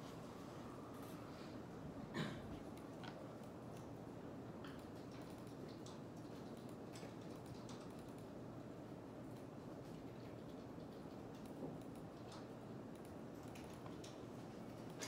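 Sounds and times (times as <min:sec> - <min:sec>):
typing on computer keyboard: 0:04.6 - 0:08.4, 0:09.2 - 0:15.0.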